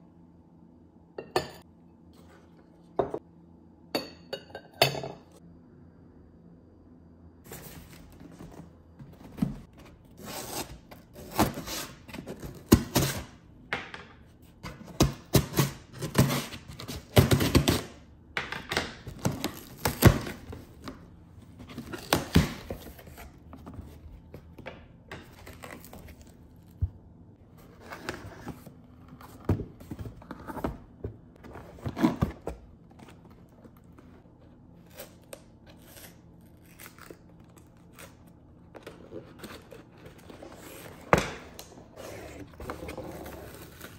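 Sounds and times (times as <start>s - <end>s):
cardboard scraping and rustling: 7.5s - 13.2s, 25.3s - 34.5s, 38.7s - 43.9s.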